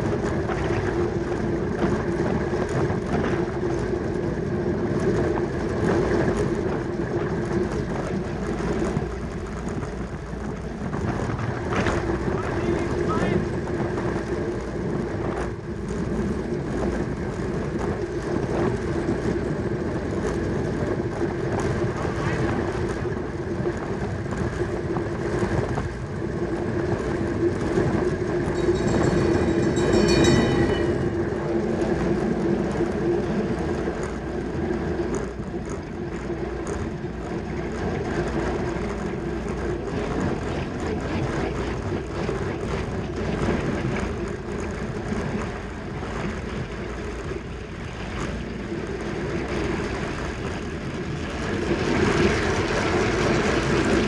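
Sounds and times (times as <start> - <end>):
wind and bicycle tyre rumble: 0.0 - 54.0
brief high ringing: 28.5 - 31.7.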